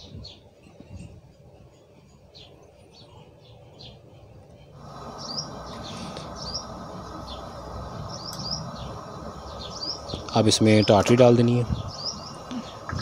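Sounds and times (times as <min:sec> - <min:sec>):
small birds chirping: 0:00.0 - 0:13.0
steady rushing noise: 0:04.8 - 0:13.0.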